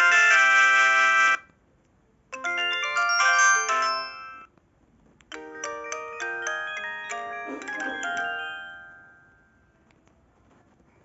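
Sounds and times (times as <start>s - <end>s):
phone ringtone melody: 0.0s - 1.4s, 2.4s - 4.5s, 5.3s - 9.8s.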